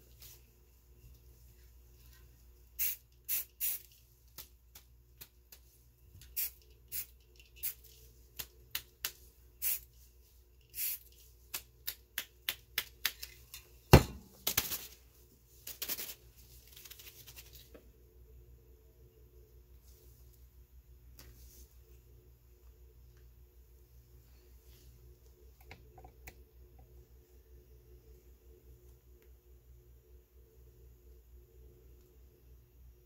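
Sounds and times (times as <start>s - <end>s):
spray paint hissing: 2.8s - 3.9s, 6.2s - 7.9s, 9.6s - 9.9s, 10.7s - 11.6s
paper rustling: 15.6s - 17.7s.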